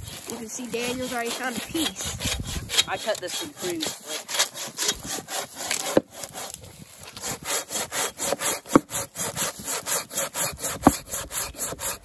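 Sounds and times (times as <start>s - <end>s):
pruning saw cutting wood: 0.0s - 12.0s.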